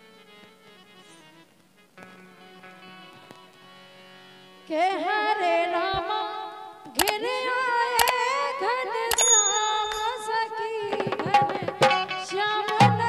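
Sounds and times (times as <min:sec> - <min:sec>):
harmonium notes: 0:00.0 - 0:13.0
woman singing: 0:04.7 - 0:13.0
bell-like ring: 0:09.1 - 0:10.7.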